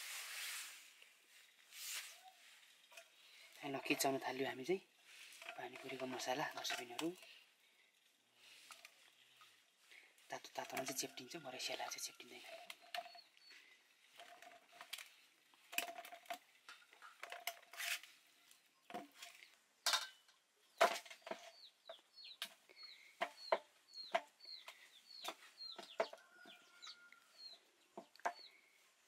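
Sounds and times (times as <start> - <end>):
chicken cheeping: 21.5 - 27.6.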